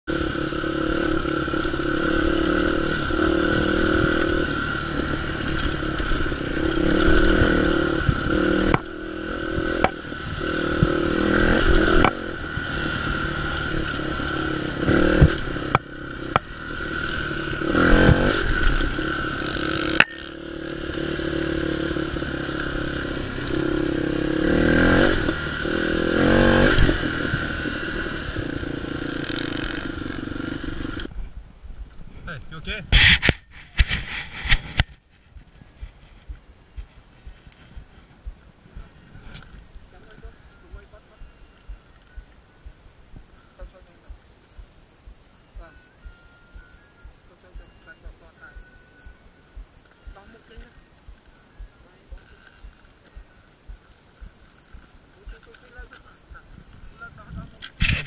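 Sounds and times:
dirt bike engine revving: 0.0 - 31.1.

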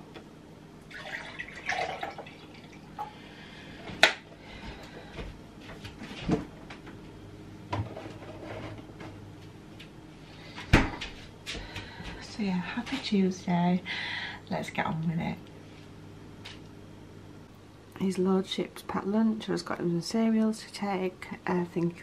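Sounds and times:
juice pouring into a glass: 0.9 - 3.0
fridge door opening and shutting: 10.7 - 11.0.

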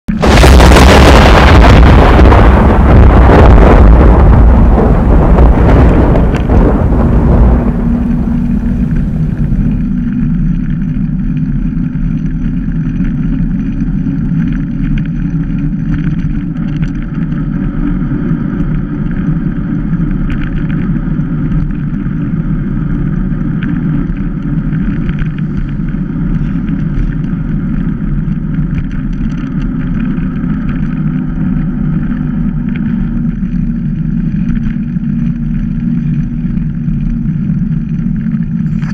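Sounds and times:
wind buffeting microphone: 0.1 - 12.2
bike tyres rolling on asphalt: 0.1 - 38.9
bike clicks and rattles: 8.9 - 38.9.

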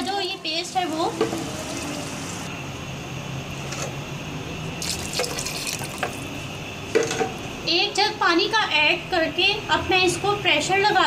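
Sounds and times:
meat sizzling in hot oil: 0.0 - 2.5, 4.8 - 6.3.

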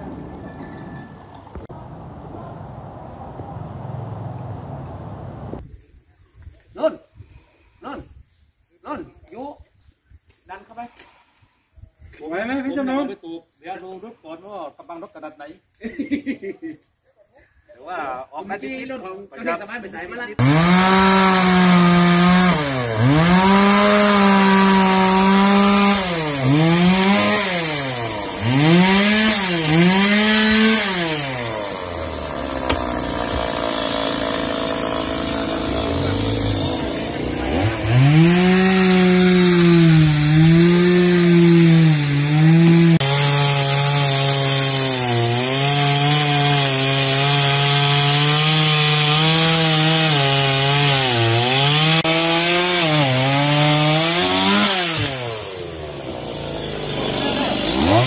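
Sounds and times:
chainsaw revving: 20.4 - 58.0.

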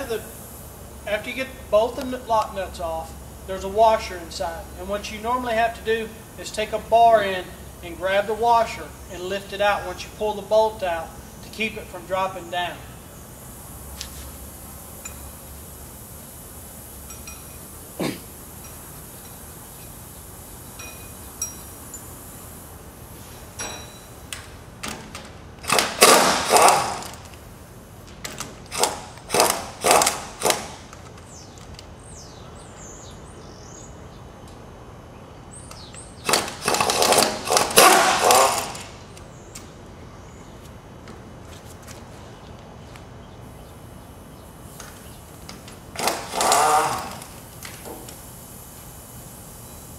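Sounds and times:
impact wrench hammering: 25.6 - 27.2, 28.7 - 30.9, 36.3 - 38.9.

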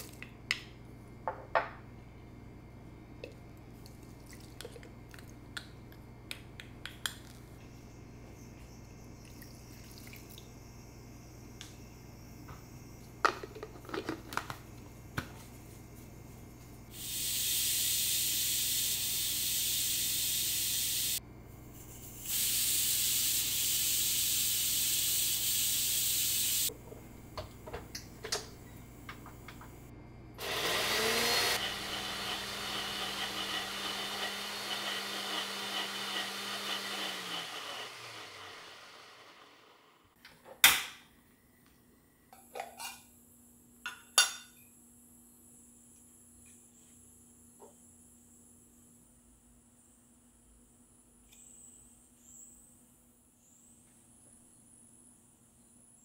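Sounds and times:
kitchen taps and knocks: 1.3 - 1.8
pressure cooker hissing steam: 16.9 - 21.2, 21.8 - 26.7, 30.4 - 39.7
blender motor whining: 30.4 - 40.1.

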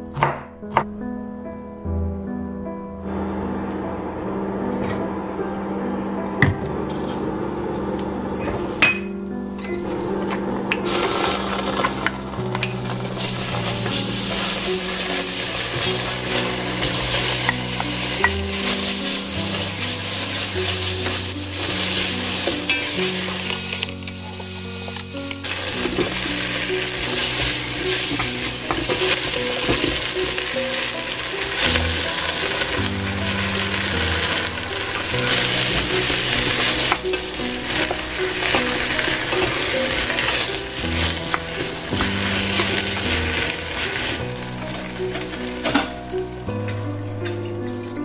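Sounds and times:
meat sizzling in hot oil: 9.8 - 46.4
wooden spoon stirring: 9.9 - 47.4.

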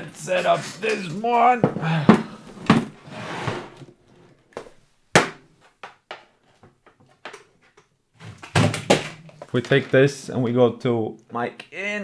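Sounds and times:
scraping on table: 2.5 - 4.0.

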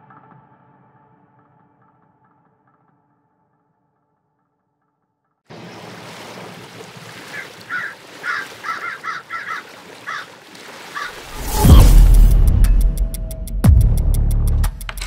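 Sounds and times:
short bird calls: 7.1 - 11.3.

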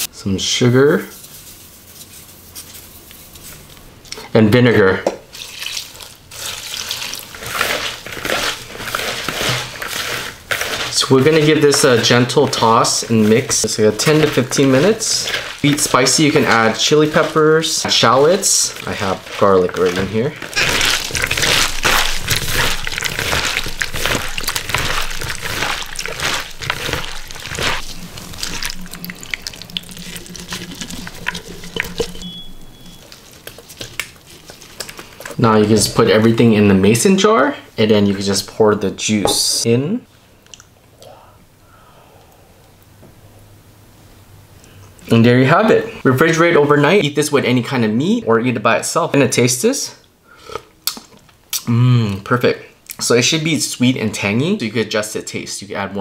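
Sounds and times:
vinegar splashing onto vegetables: 5.3 - 32.2
hand tossing vegetables in bowl: 5.3 - 39.7.

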